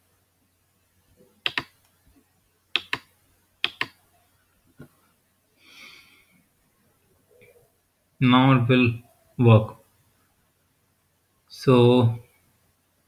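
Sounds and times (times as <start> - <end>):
computer mouse clicking: 1.4 - 1.9, 2.8 - 4.0.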